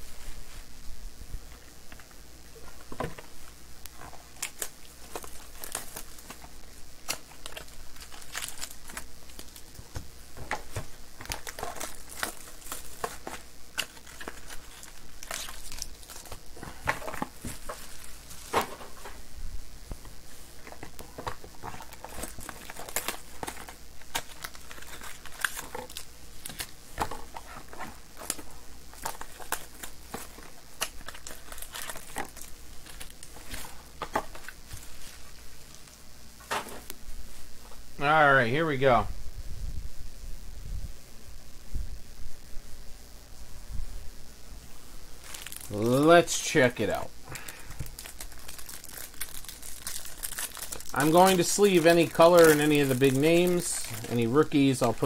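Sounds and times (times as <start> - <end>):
cards and boxes handled: 1.5 - 19.2, 19.9 - 35.8, 45.2 - 55.0
wrappers crinkling and tearing: 2.7 - 19.2, 20.2 - 36.0, 45.2 - 55.0.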